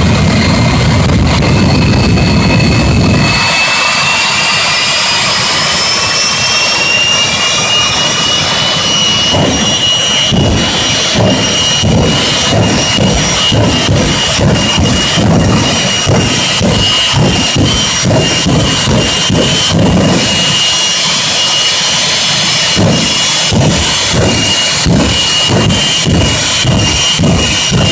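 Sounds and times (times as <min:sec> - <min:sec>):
heavy low rumble: 0:00.0 - 0:27.9
jet engines roaring: 0:00.0 - 0:27.9
low thumps: 0:08.9 - 0:20.8, 0:22.7 - 0:27.9.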